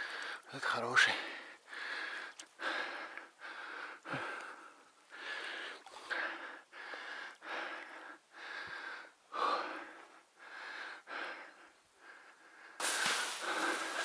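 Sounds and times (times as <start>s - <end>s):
man breathing heavily: 1.1s - 14.0s
steady rustle: 12.8s - 14.0s.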